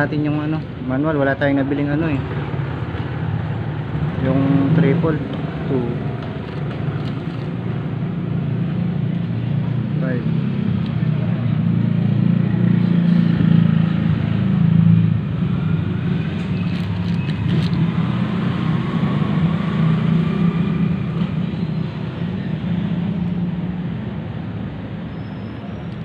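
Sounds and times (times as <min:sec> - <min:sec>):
vehicle engine droning: 0:01.5 - 0:26.0.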